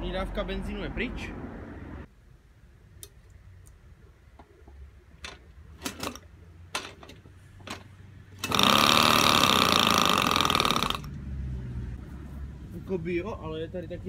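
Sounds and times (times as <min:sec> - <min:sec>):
moped engine buzzing: 0:08.2 - 0:12.0.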